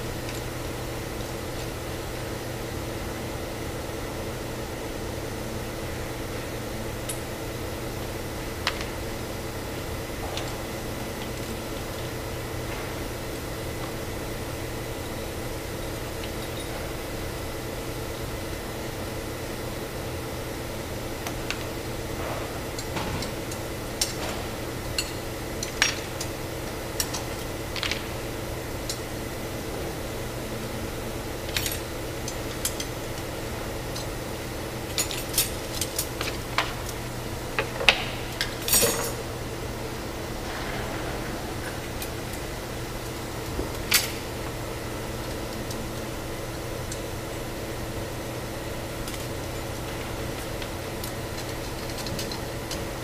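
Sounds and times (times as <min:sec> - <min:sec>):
machinery hum: 0:00.0 - 0:53.0.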